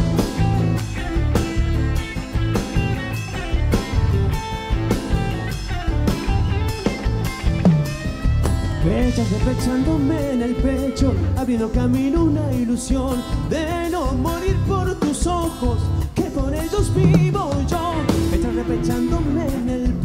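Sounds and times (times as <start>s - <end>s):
live band playing folk music: 0.0s - 20.0s.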